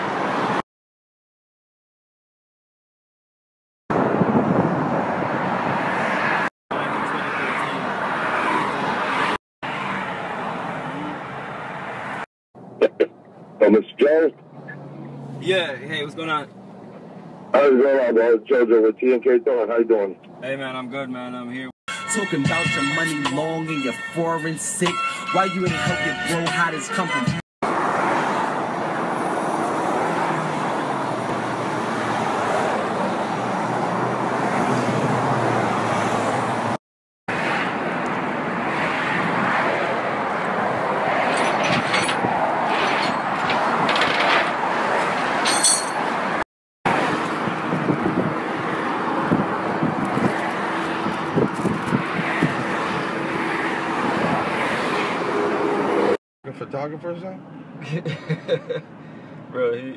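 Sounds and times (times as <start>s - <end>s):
cars passing: 0.0s - 0.6s, 3.9s - 21.7s, 27.6s - 59.9s
highway traffic: 0.0s - 0.7s, 3.9s - 59.9s.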